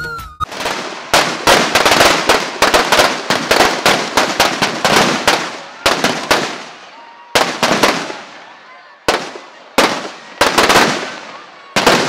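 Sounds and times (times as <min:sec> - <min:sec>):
firecrackers going off: 0:00.4 - 0:12.0.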